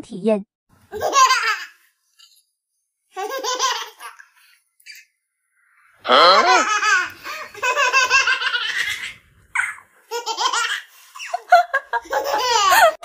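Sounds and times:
baby giggling: 0:00.9 - 0:01.8, 0:06.1 - 0:13.0.

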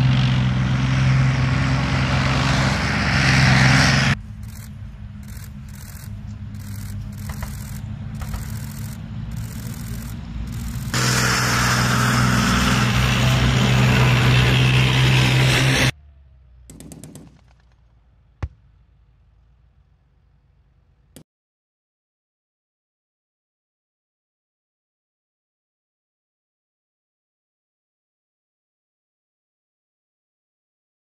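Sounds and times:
tank engine and tracks rumbling: 0:00.0 - 0:21.2.

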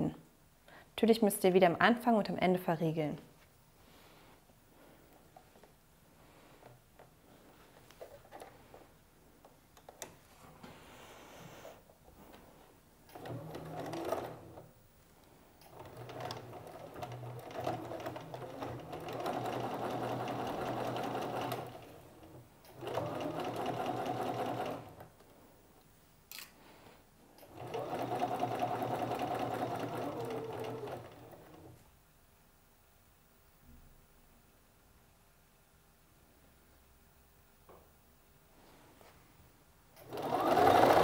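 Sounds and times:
sewing machine stitching: 0:13.1 - 0:14.7, 0:15.6 - 0:25.1, 0:27.4 - 0:31.8, 0:40.0 - 0:41.0.

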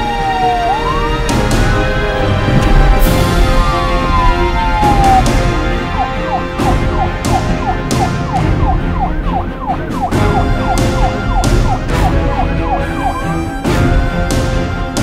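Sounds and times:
police siren yelping: 0:00.0 - 0:01.9, 0:03.2 - 0:13.6
music with steady drum beat: 0:06.2 - 0:14.7.

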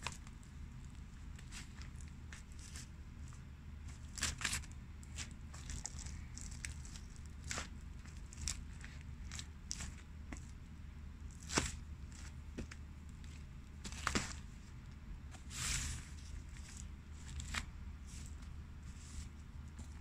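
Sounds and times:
low steady hum: 0:00.0 - 0:20.0
wet crunches and squishes underfoot: 0:03.9 - 0:10.5.

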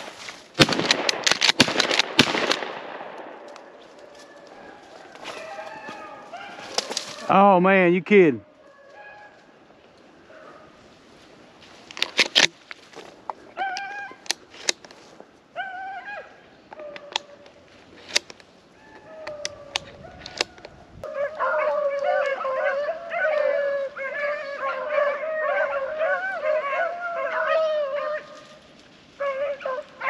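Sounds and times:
dry brush snapping: 0:00.0 - 0:02.6, 0:03.4 - 0:07.3, 0:11.6 - 0:15.1
pack of dogs baying: 0:03.8 - 0:07.3, 0:08.4 - 0:09.6, 0:21.0 - 0:28.6, 0:29.2 - 0:30.0.

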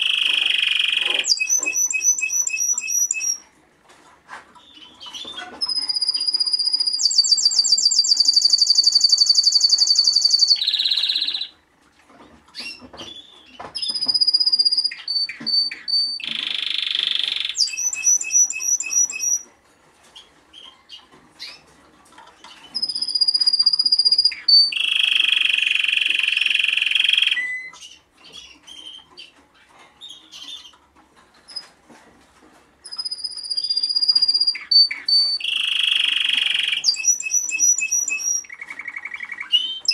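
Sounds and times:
canary singing trills: 0:00.0 - 0:03.5, 0:04.6 - 0:11.6, 0:12.6 - 0:19.5, 0:22.5 - 0:30.8, 0:32.8 - 0:39.9.

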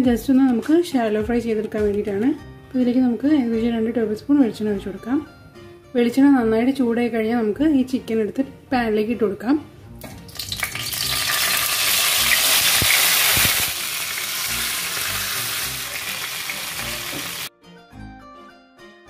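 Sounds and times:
soft background music: 0:00.0 - 0:19.0
oil sizzling loudly in a pan: 0:10.3 - 0:17.5.

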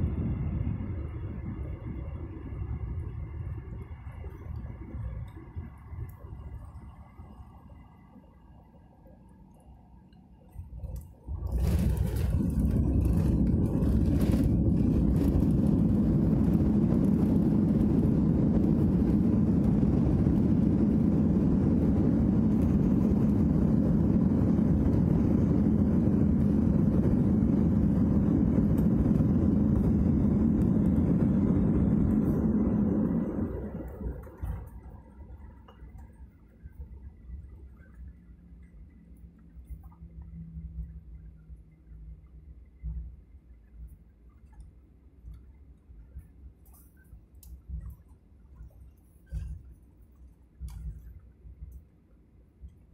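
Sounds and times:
airliner rolling rumble: 0:00.0 - 0:07.6, 0:10.6 - 0:41.9.

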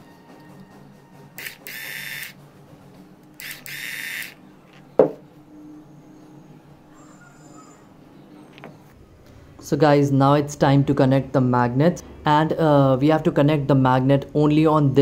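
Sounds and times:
electric drill whine: 0:01.4 - 0:02.4, 0:03.4 - 0:04.4.

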